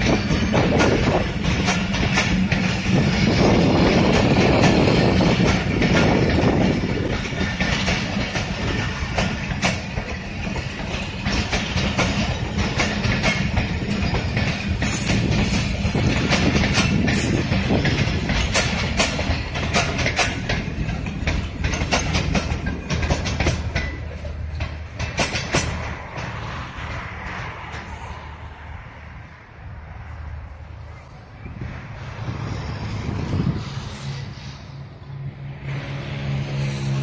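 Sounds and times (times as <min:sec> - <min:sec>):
wheels clacking over rail joints: 0:00.0 - 0:29.4
train wheels rumbling on rails: 0:00.0 - 0:37.0.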